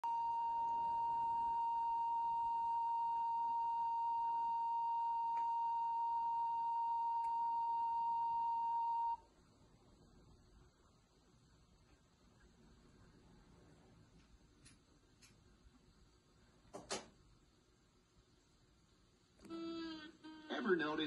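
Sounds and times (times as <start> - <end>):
steady pure test tone: 0.0 - 9.3.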